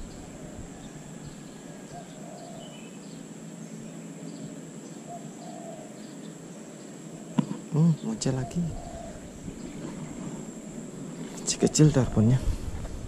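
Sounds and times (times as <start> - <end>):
bird calling: 0.0 - 12.4
background hiss: 0.0 - 13.0
steady high-pitched whine: 0.0 - 13.0.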